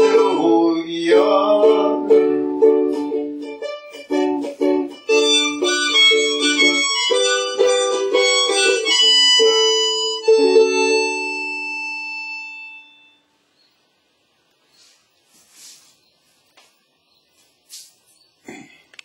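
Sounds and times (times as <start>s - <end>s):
ukulele strumming: 0.0s - 13.0s.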